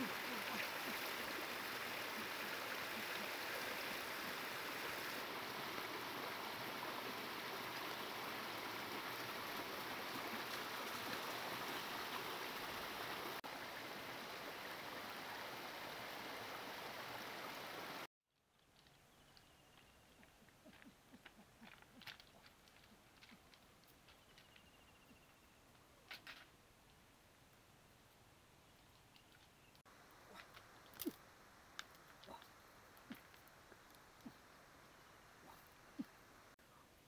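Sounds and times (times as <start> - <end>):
stream rushing over rocks: 0.0 - 18.1.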